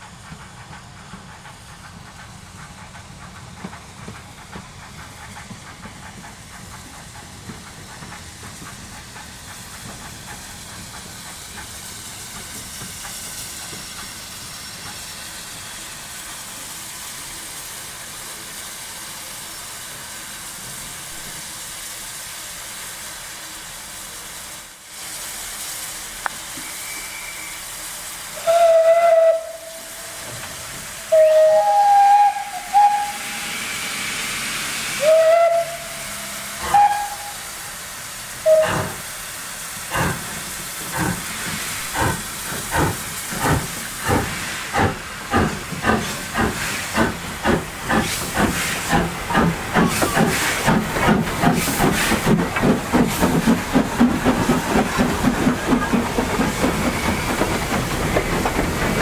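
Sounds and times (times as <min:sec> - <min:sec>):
steam hissing: 0:00.0 - 0:59.0
steam whistle blasts: 0:26.6 - 0:27.8, 0:28.4 - 0:30.3, 0:31.0 - 0:37.7, 0:38.4 - 0:39.0
locomotive exhaust beats: 0:28.4 - 0:33.4, 0:35.0 - 0:37.7.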